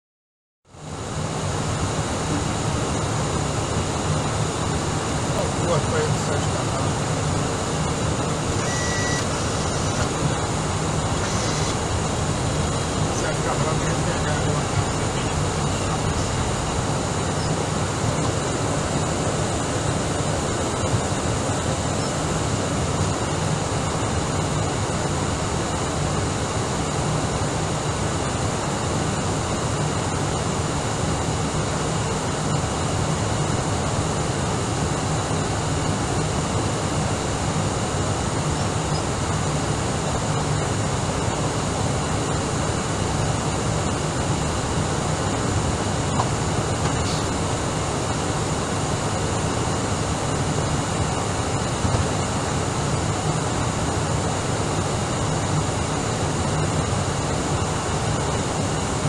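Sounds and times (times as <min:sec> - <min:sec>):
airflow rush and engine hum: 0:00.7 - 0:59.0
faint high-pitched whines: 0:02.0 - 0:24.0.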